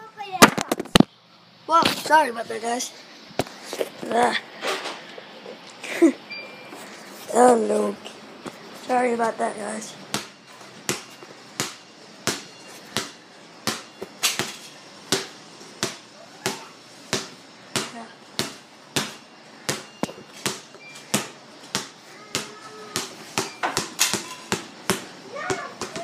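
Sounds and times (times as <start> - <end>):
basketball bouncing: 10.1 - 26.0.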